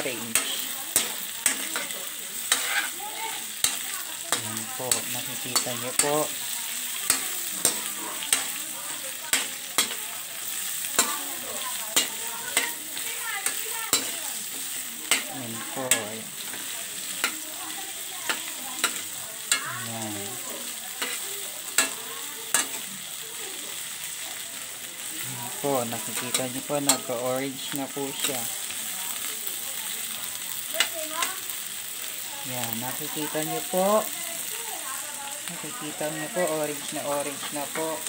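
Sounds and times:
metal spatula scraping a pan: 0.0 - 22.9, 25.4 - 28.5
shrimp sizzling in a pan: 0.0 - 38.0.

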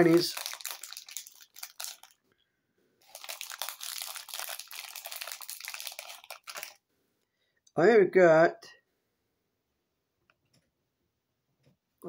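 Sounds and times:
snack packaging crinkling: 0.0 - 2.2, 3.0 - 6.8.

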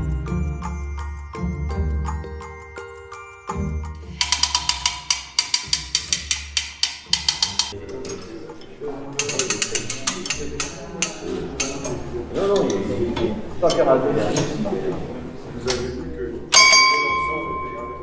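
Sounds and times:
background music: 0.0 - 12.3
ratchet clicking rapidly: 4.0 - 7.8, 9.2 - 11.8.

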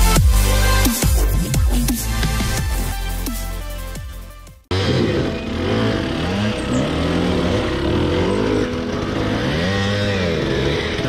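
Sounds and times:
dirt bike engine revving: 4.7 - 11.0.

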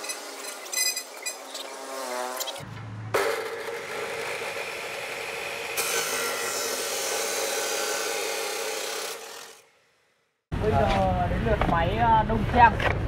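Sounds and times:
cut-off saw cutting steel: 0.0 - 10.0.

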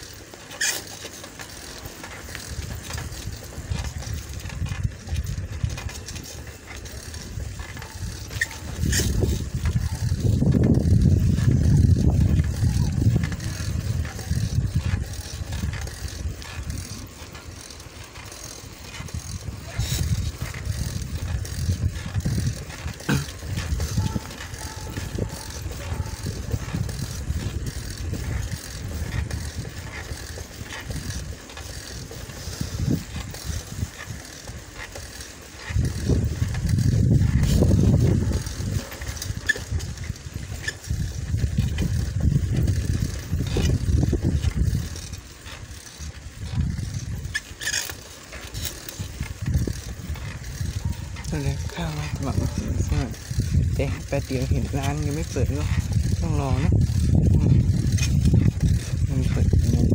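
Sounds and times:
wind buffeting microphone: 1.8 - 59.9.

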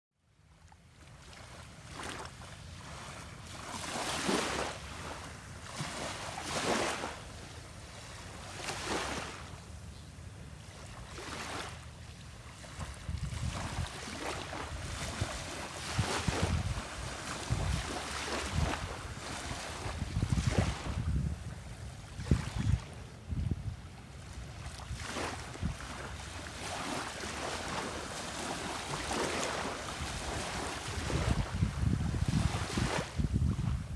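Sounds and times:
small waves lapping on shore: 0.4 - 33.9
wind buffeting microphone: 12.7 - 33.9.

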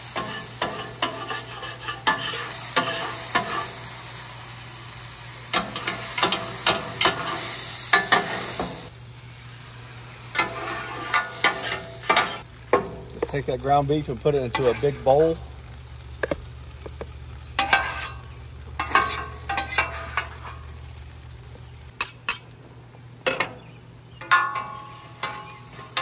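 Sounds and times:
water sizzling on hot steel: 0.0 - 22.0, 24.5 - 26.0
metal spatula scraping griddle: 0.1 - 3.8, 5.6 - 8.8, 10.3 - 13.3, 14.5 - 15.3, 17.6 - 20.7, 24.3 - 26.0.

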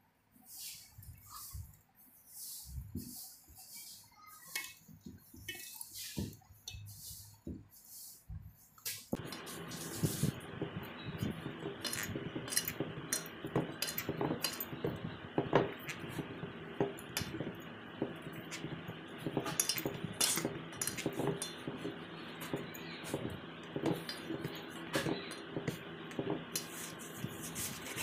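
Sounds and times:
dough kneaded on metal plate: 2.6 - 28.0
steady hum: 9.1 - 28.0.

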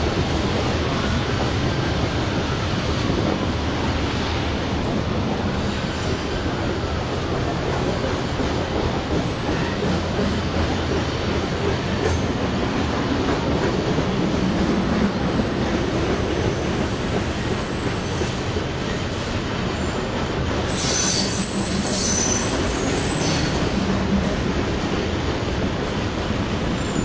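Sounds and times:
train wheels rumbling on rail: 0.0 - 27.0
high-pitched wheel squeal: 20.7 - 23.6.

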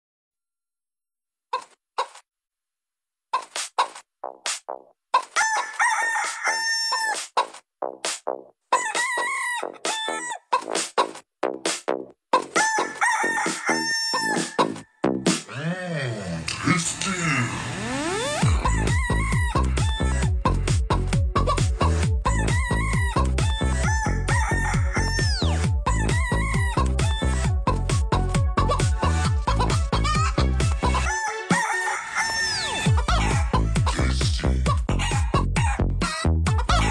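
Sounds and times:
sampled chicken clucks: 1.5 - 2.2, 3.3 - 4.1, 5.1 - 7.6, 8.7 - 11.2, 12.3 - 14.8, 34.7 - 36.9
rooster-like crowing calls: 5.2 - 7.2, 8.7 - 10.5, 12.6 - 14.8, 23.5 - 25.6, 31.0 - 33.6, 35.0 - 35.8
electronic dance track: 16.5 - 35.6.

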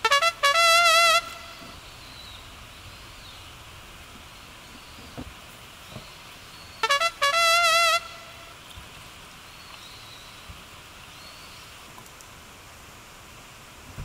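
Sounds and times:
comic trumpet sound effect: 0.0 - 1.8, 6.8 - 8.5
faint steady hiss: 0.0 - 14.0.

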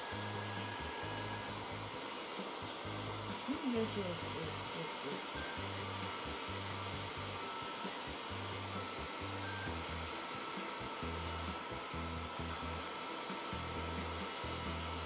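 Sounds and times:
hair dryer blowing: 0.0 - 15.0.

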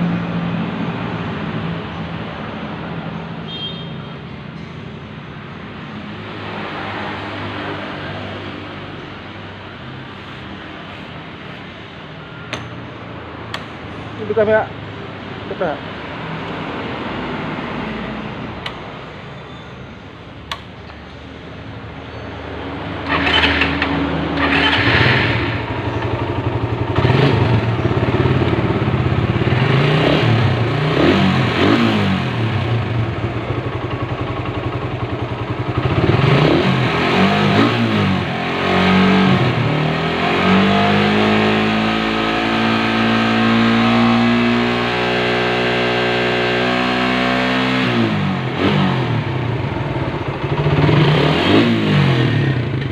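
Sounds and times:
motorcycle engine revving: 22.5 - 52.9.

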